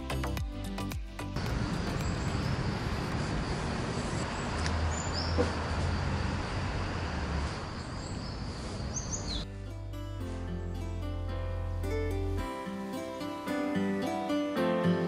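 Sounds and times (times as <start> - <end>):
bird chirps: 4.2 - 5.6, 7.8 - 9.5.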